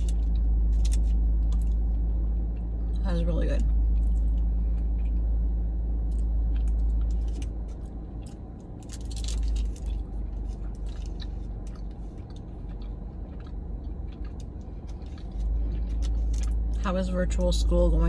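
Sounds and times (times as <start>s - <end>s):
low rumble: 0.0s - 18.0s
wet chewing: 3.6s - 5.4s, 6.1s - 16.9s.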